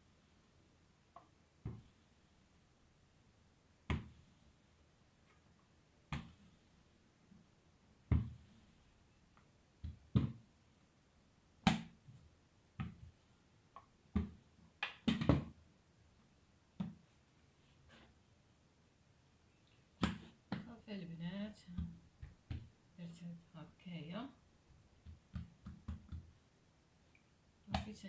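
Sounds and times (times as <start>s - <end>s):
soft thumps on dough: 8.0s - 8.6s, 21.7s - 22.8s.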